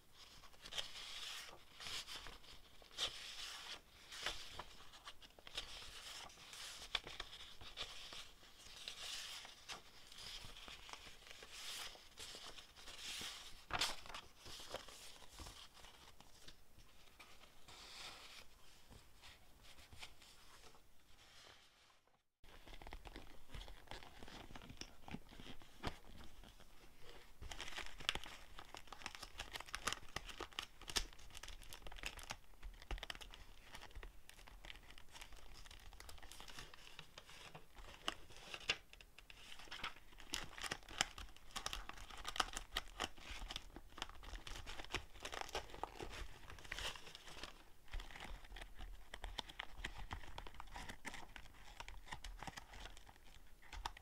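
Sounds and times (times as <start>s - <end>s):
paper sheets rustling: 0.2s - 26.6s.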